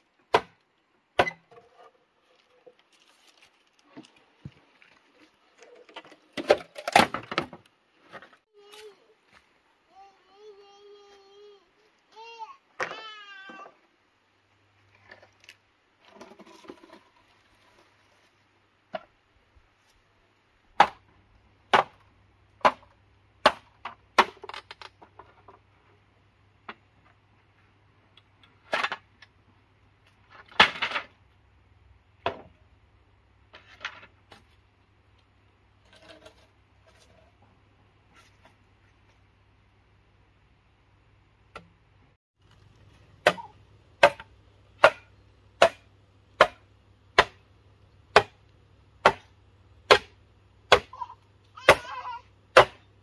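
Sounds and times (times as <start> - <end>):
machete chopping bamboo: 0.3 - 0.6, 20.8 - 21.0, 21.7 - 22.0, 22.6 - 24.5, 43.2 - 47.4, 48.1 - 48.4, 49.0 - 52.9
bamboo poles knocking: 43.2 - 46.6, 47.2 - 47.4.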